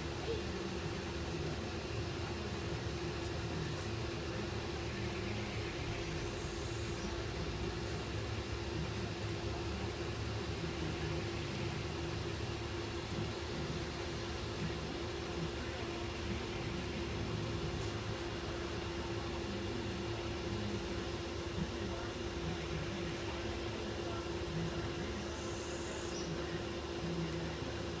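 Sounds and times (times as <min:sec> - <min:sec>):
fan machine hum: 0:00.0 - 0:28.0.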